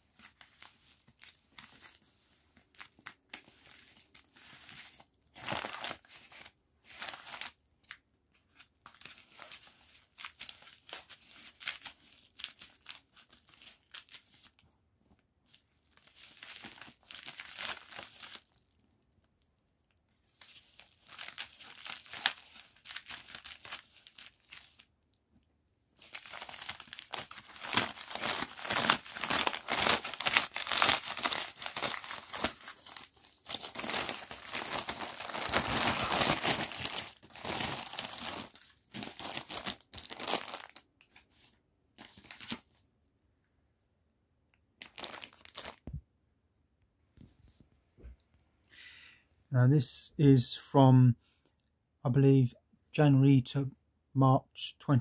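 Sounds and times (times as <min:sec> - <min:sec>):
plastic bag crinkling: 0:00.1 - 0:08.0, 0:15.5 - 0:18.8, 0:20.3 - 0:25.0, 0:26.0 - 0:42.8, 0:44.8 - 0:46.0
scissors cutting plastic bag: 0:26.1 - 0:40.8.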